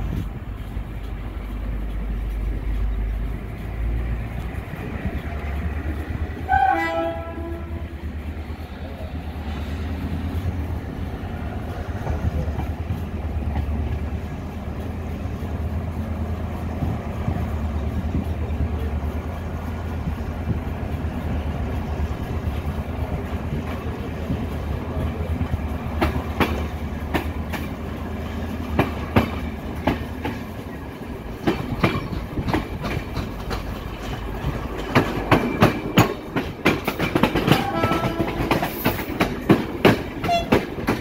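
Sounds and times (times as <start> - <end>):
train wheels rumbling on rails: 0.0 - 41.0
locomotive horn blast: 6.4 - 8.1, 37.5 - 38.8, 40.2 - 40.6.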